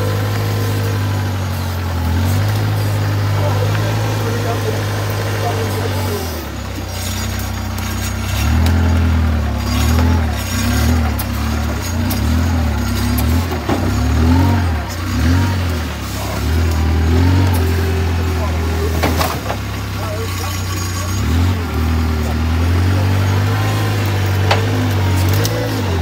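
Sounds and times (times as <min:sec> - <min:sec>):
tractor engine working hard: 0:00.0 - 0:26.0.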